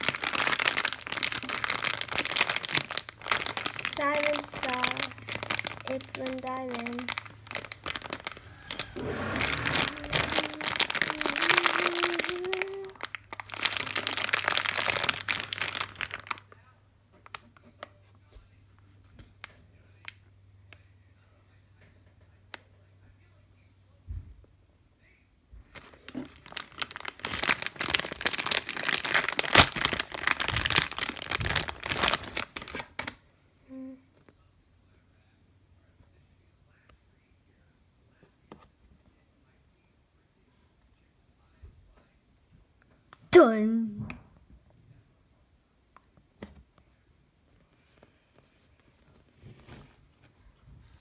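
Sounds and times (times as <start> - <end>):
plastic bag crinkling: 0.0 - 16.6, 25.7 - 33.2.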